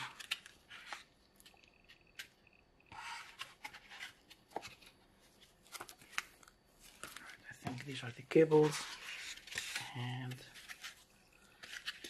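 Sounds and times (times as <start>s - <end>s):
cardboard rustling and scraping: 3.0s - 7.3s, 8.4s - 12.0s.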